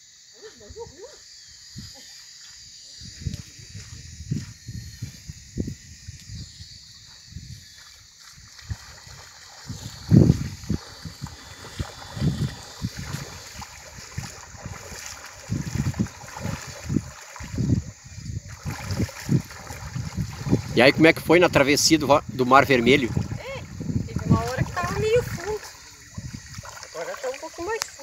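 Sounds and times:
wind buffeting microphone: 3.0s - 28.0s
river water trickling and splashing: 5.9s - 28.0s.

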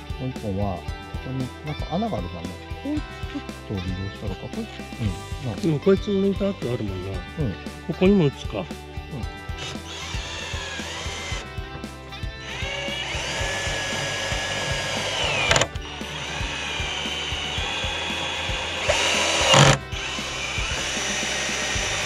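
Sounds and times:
electric screwdriver whine: 9.6s - 11.5s, 12.4s - 22.0s.

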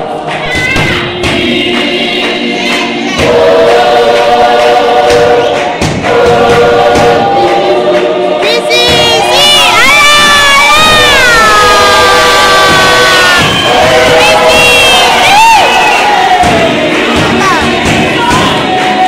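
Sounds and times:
gospel choir singing: 0.0s - 19.0s
hand claps: 4.1s - 9.3s.

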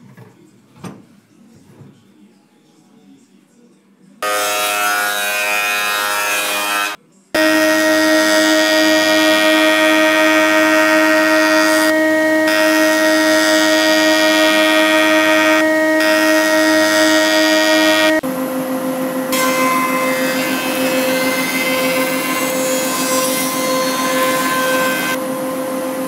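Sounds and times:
thickness planer lower whine: 4.2s - 26.0s
jointer machine whine: 6.0s - 26.0s.

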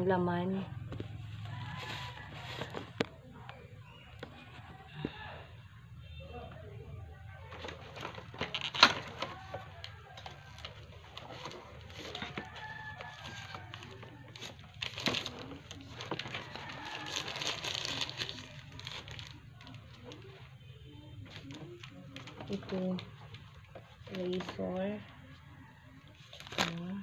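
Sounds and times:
plastic bags crinkling: 7.4s - 20.5s, 26.1s - 27.0s.

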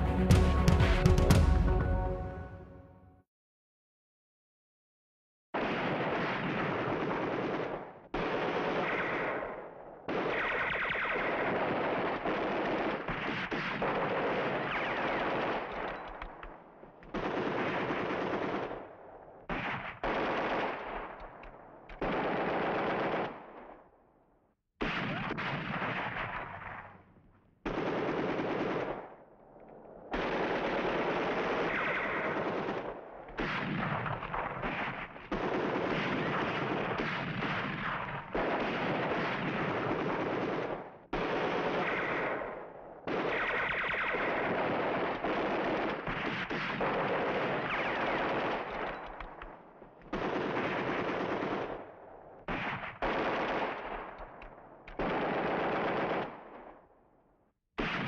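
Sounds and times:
machine-gun fire bursts: 5.6s - 23.9s, 24.8s - 27.0s, 27.6s - 29.3s, 30.0s - 56.8s, 57.8s - 58.0s.

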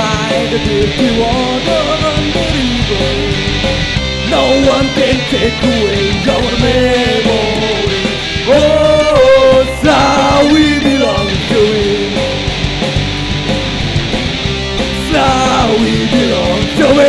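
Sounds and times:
man singing loudly: 0.0s - 3.5s, 4.3s - 12.3s, 15.0s - 17.0s
live band with guitar: 0.0s - 17.0s.

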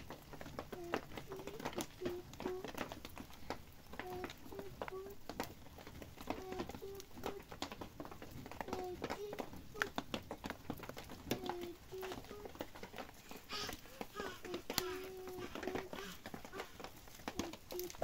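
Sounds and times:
dripping water or light rain: 0.0s - 18.0s
dove cooing: 13.4s - 18.0s.

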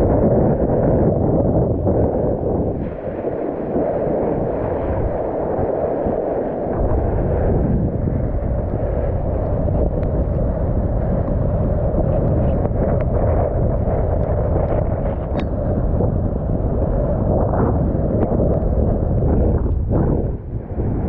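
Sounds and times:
wind buffeting microphone: 0.0s - 21.0s
sea water rushing and splashing: 2.7s - 11.5s.

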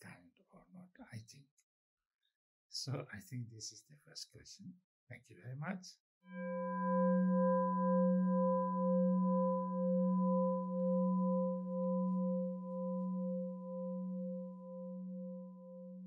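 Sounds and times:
singing bowl ringing: 6.3s - 16.0s.

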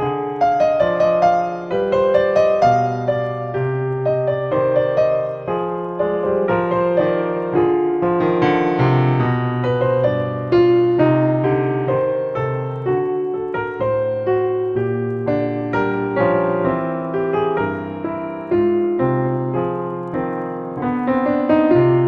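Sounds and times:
calm piano music: 0.0s - 22.0s.

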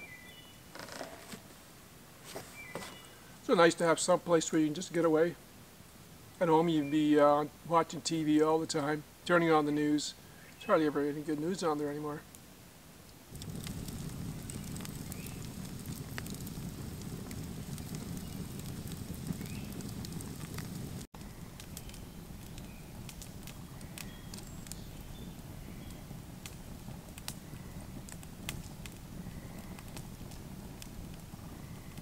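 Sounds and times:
logs crackling and popping: 0.7s - 1.6s, 6.3s - 32.0s
fire flame rushing: 13.2s - 32.0s.

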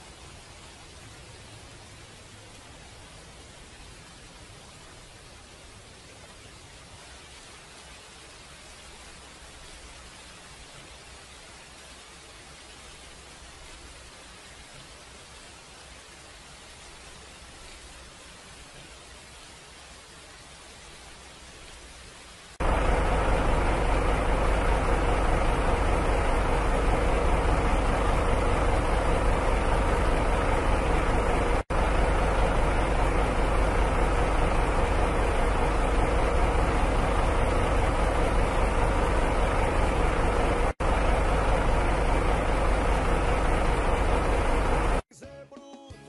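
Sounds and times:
faint hiss: 0.0s - 45.0s
buggy engine running loud: 22.6s - 45.0s.

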